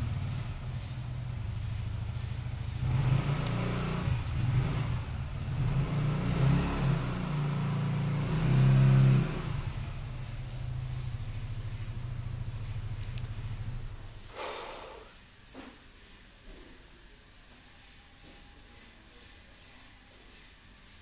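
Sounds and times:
vehicle engine revving: 0:00.0 - 0:14.3.

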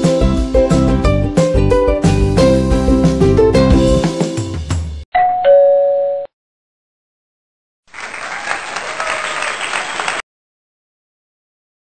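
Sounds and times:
background music: 0:00.0 - 0:05.0.

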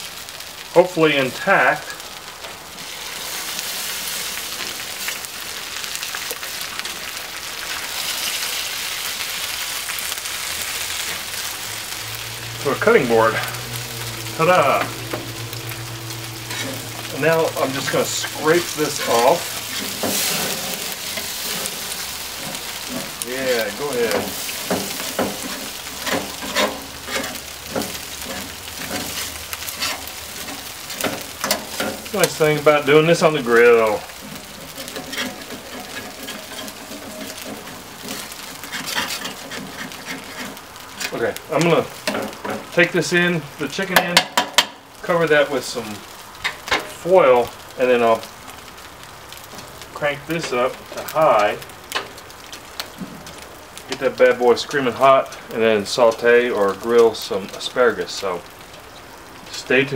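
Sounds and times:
chicken fat sizzling on grill stone: 0:00.0 - 0:59.9
grill brush scraping stone: 0:16.4 - 0:41.2.

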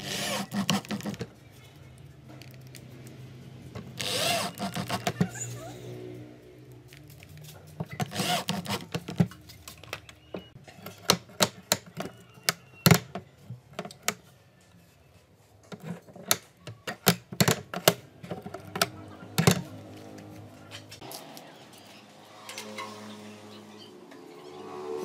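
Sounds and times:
metal latch clicking and clacking: 0:15.7 - 0:19.6.

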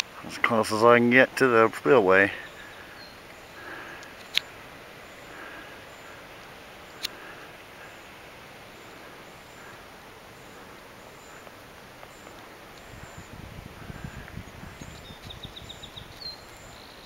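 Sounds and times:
faint chirps: 0:02.2 - 0:13.4.

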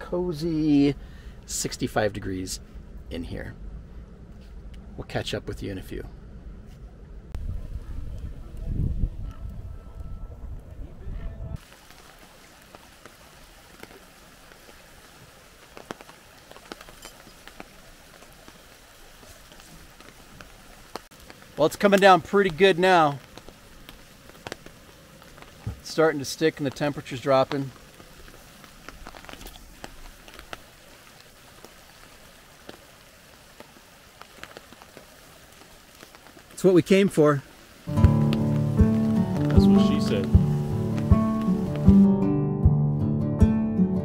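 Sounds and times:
light ticks of snow: 0:11.6 - 0:41.8
snowstorm hiss: 0:11.6 - 0:42.1.

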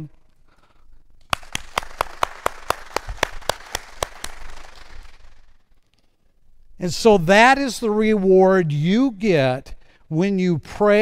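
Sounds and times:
person clapping close: 0:01.2 - 0:05.4
crowd applause: 0:01.3 - 0:05.2.

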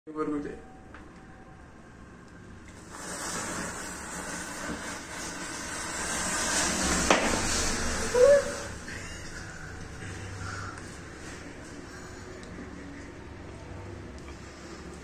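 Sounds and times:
matches flaring with a hiss: 0:02.6 - 0:13.2
high-pitched squeal: 0:02.9 - 0:10.8
sharp crack: 0:06.4 - 0:07.9.

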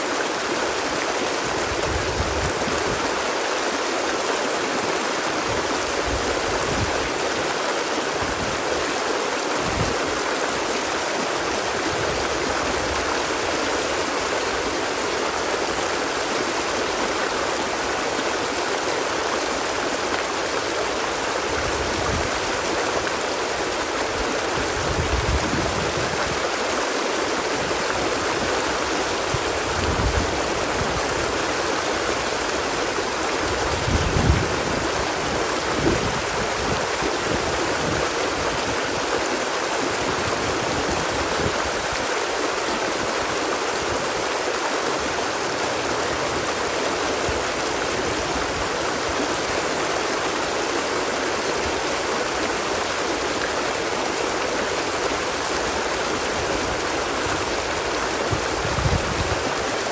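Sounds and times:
water rushing: 0:00.0 - 0:59.9.

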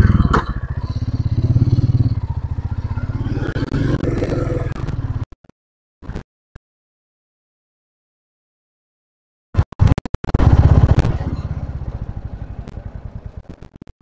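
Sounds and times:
motorcycle engine riding away: 0:00.0 - 0:05.2, 0:10.4 - 0:13.6.

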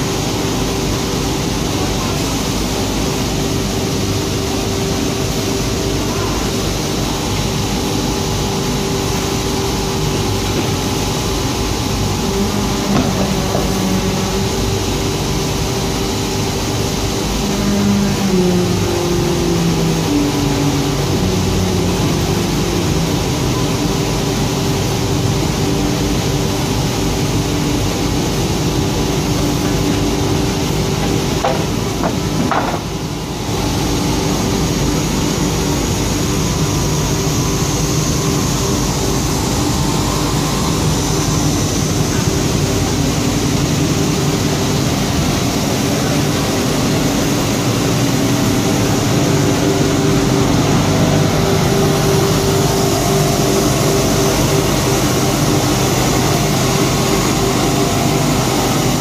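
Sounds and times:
constant hum: 0:00.0 - 0:59.0
machine noise: 0:00.0 - 0:59.0.

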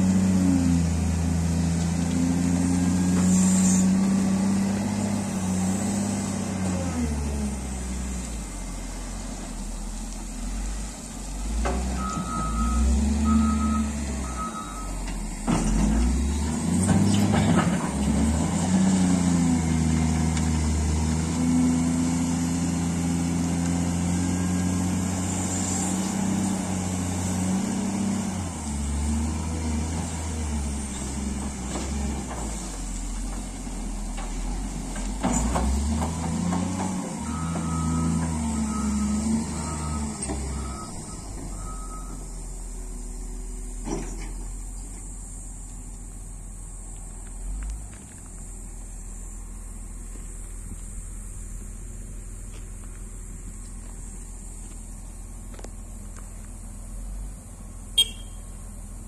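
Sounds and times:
wheel loader diesel engine revving: 0:00.0 - 0:45.6
reversing alarm beeps: 0:12.0 - 0:15.0, 0:37.2 - 0:42.3, 0:58.0 - 0:58.4.

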